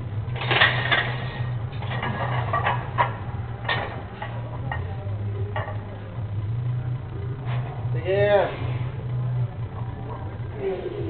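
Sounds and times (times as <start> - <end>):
low hum: 0.0 - 11.0
barbell plates clanking: 0.4 - 4.9.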